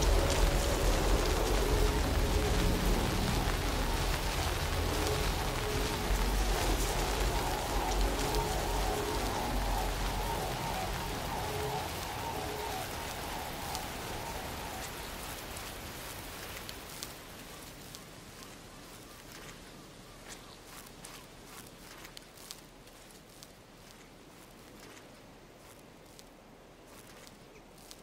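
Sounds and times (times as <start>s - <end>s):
low rumble: 0.0s - 16.9s
faint pulsing tones: 0.0s - 28.0s.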